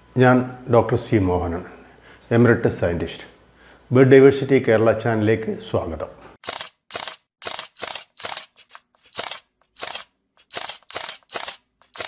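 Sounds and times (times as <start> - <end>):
camera shutter clicking: 6.4 - 12.0.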